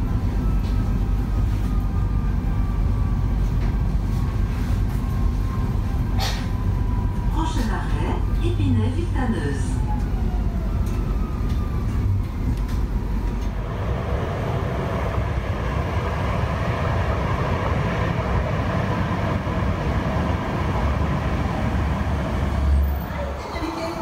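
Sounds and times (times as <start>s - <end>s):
steel wheels rolling on rail: 10.0s - 24.0s.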